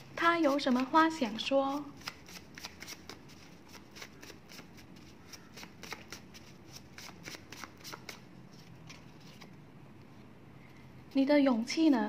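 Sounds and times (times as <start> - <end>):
cards being shuffled: 0.2 - 9.6.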